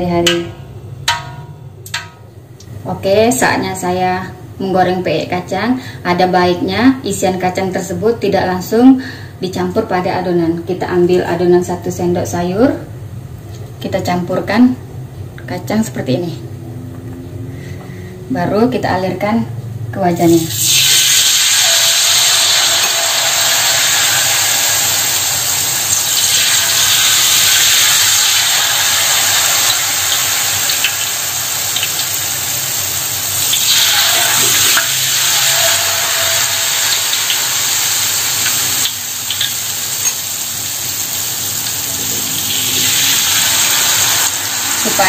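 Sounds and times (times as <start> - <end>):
batter sizzling in hot oil: 20.5 - 45.0.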